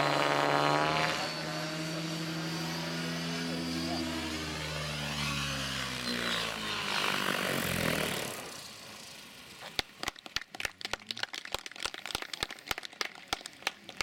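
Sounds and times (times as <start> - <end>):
helicopter rotor whooshing: 0.0 - 9.6.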